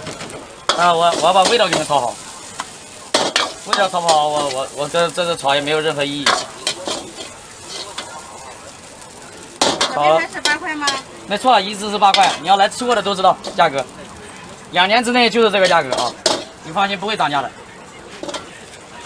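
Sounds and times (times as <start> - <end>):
noodles sizzling in a wok: 0.0 - 19.0
ladle scraping wok: 0.2 - 11.1, 11.7 - 14.2, 15.5 - 16.6
metal ladle clanking on pan: 3.1 - 4.6, 6.2 - 7.3, 9.6 - 11.0, 15.6 - 16.6.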